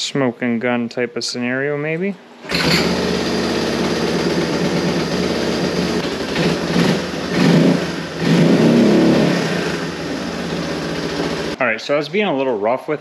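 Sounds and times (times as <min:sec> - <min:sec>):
quad bike engine revving: 0:02.4 - 0:11.6.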